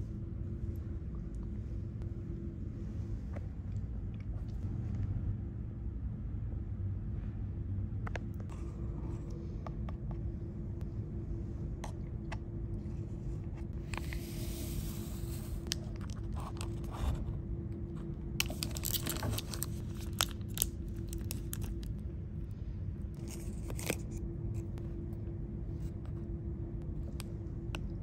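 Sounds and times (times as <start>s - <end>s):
steady low hum: 0.0s - 28.0s
plastic wrapper tearing and crinkling: 18.4s - 21.9s.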